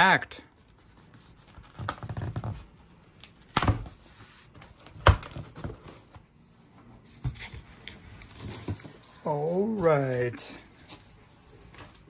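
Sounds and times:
cardboard scraping and rustling: 0:06.9 - 0:12.0.

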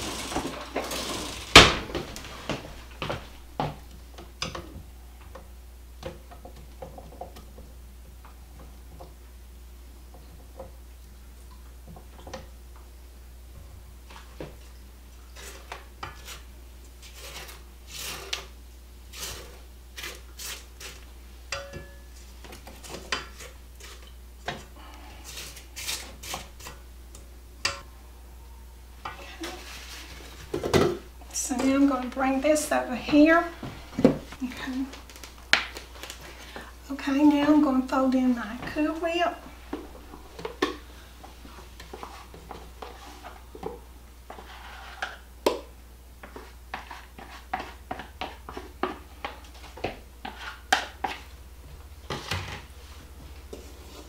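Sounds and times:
spatula scraping a steel bowl: 0:15.3 - 0:18.5, 0:19.1 - 0:21.7, 0:44.3 - 0:45.3, 0:46.2 - 0:51.2.

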